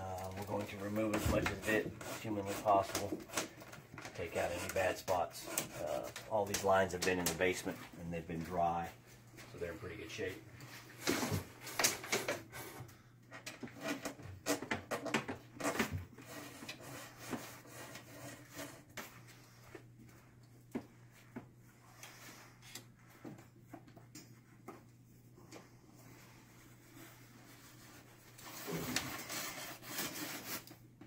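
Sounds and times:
wire rustling and scraping: 13.4 - 31.0.

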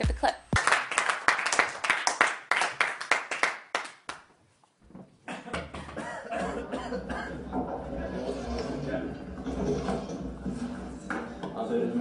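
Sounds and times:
sharp clap-like hits: 0.5 - 4.3.

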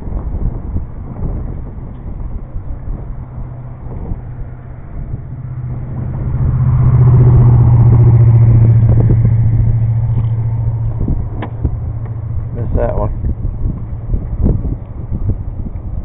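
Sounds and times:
boat motor humming: 0.0 - 16.0.

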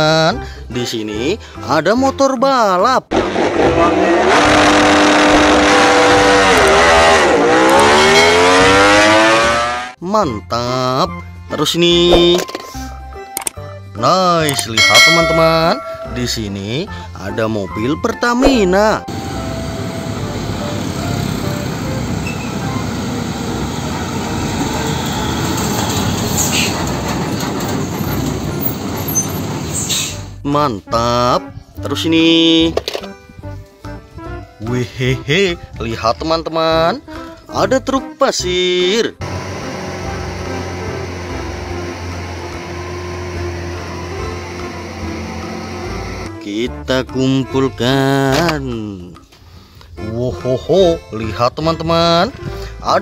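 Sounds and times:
motorcycle engine revving: 3.1 - 10.0, 39.2 - 46.3
trucks driving past: 19.0 - 30.4, 39.2 - 46.4.

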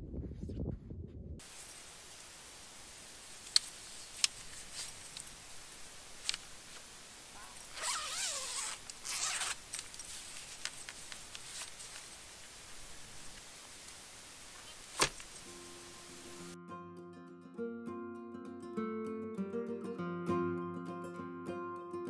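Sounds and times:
fabric handling: 6.2 - 12.6
zipper pulled open: 7.4 - 10.0.

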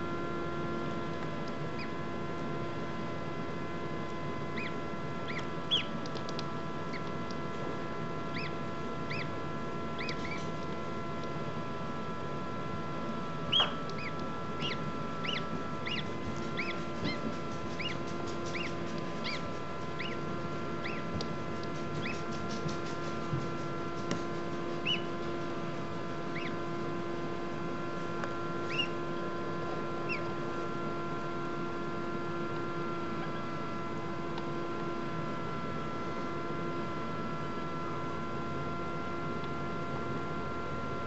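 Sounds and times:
steady hum: 0.0 - 41.0
gosling peeping: 4.5 - 6.3, 8.3 - 9.4, 10.0 - 10.7, 13.5 - 22.6, 24.8 - 25.2, 26.3 - 26.6, 28.6 - 29.0, 30.0 - 30.3.

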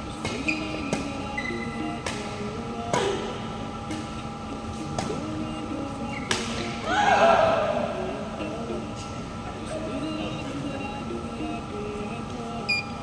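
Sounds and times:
rackets hitting shuttlecock: 0.2 - 1.2, 2.0 - 2.3, 6.3 - 6.7.

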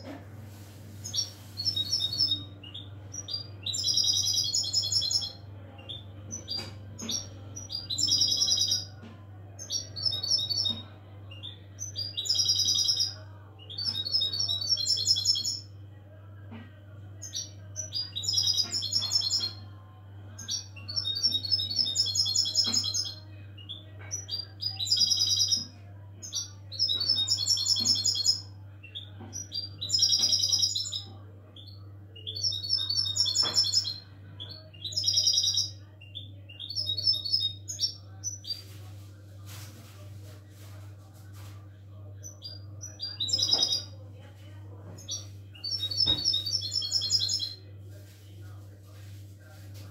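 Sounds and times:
goldfinch singing: 1.0 - 8.9, 17.2 - 19.6, 20.4 - 31.1.

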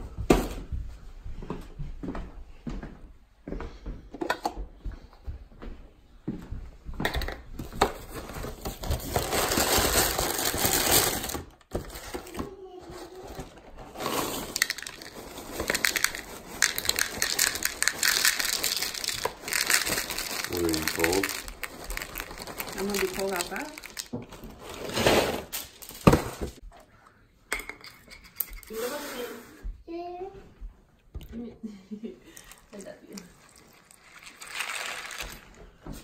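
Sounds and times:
plastic bag crinkling: 8.4 - 11.6, 13.8 - 26.5, 32.6 - 35.8
cereal poured into bowl: 13.9 - 24.1, 32.6 - 35.6.

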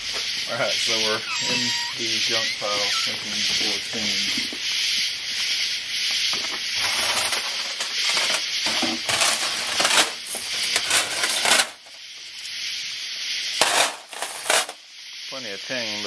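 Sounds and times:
steady hiss: 0.0 - 16.0
rubbing and rustling: 6.4 - 11.8.

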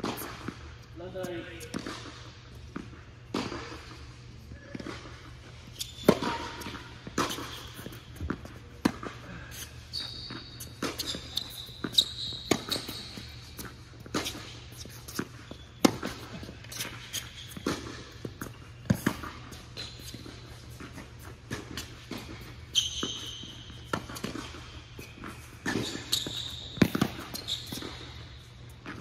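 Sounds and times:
tennis balls bouncing: 0.0 - 29.0.

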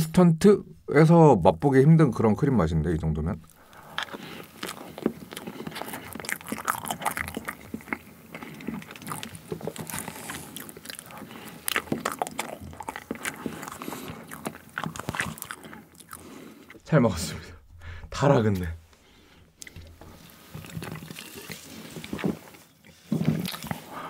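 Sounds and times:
wet chewing mouth noises: 3.4 - 16.9, 19.1 - 24.0.

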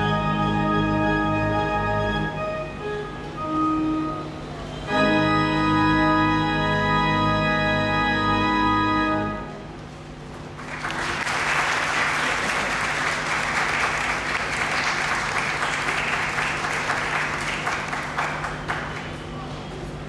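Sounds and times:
pipe organ chord: 0.0 - 9.7
audience applause: 10.4 - 19.3.

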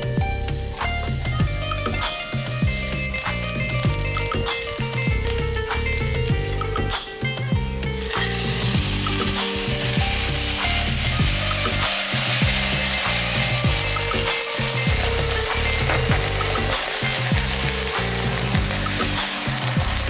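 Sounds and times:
onions sizzling in frying pan: 0.0 - 20.0
water poured into pan: 8.0 - 20.0.

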